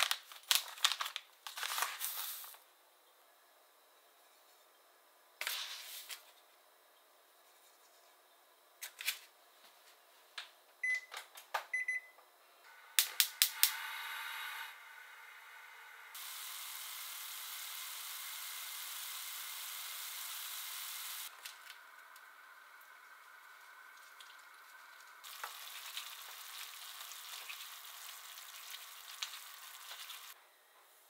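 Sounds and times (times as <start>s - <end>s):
packet rustling: 0.0s - 2.6s
gas burner hissing: 12.7s - 22.8s.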